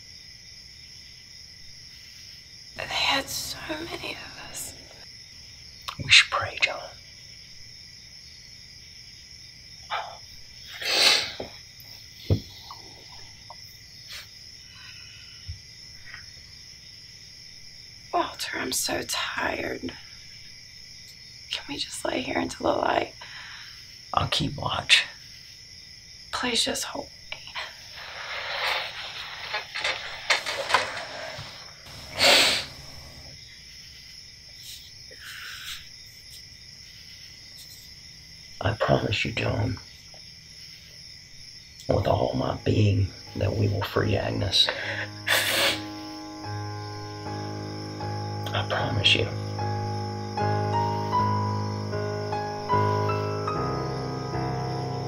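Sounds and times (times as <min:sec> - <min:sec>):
crickets chirring: 0:00.0 - 0:55.0
soft rustling movements: 0:27.6 - 0:33.3.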